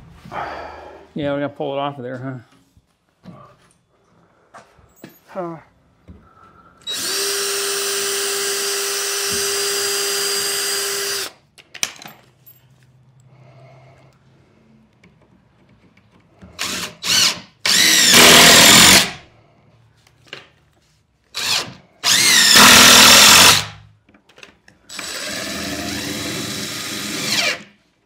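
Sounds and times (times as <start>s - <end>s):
cordless drill driving screws: 6.8s - 11.4s, 16.6s - 19.2s, 21.3s - 23.8s, 24.9s - 27.7s.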